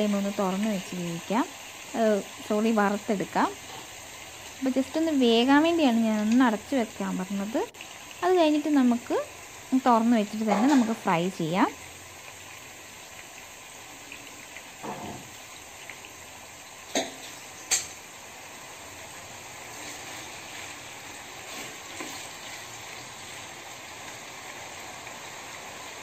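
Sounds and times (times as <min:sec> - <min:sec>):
chicken sizzling in oil: 0:00.0 - 0:26.0.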